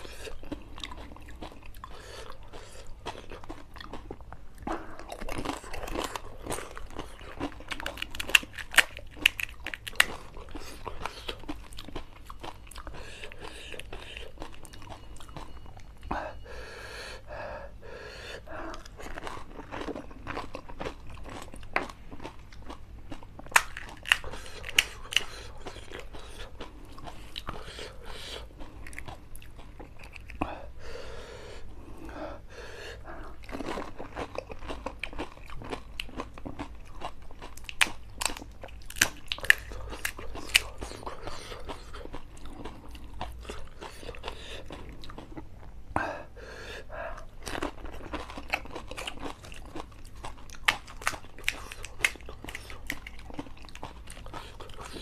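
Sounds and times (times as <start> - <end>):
chewing and wet mouth sounds: 0.0 - 16.5, 18.2 - 46.2, 46.8 - 55.0
crisp shells crunched between teeth: 5.1 - 12.6, 22.7 - 27.6.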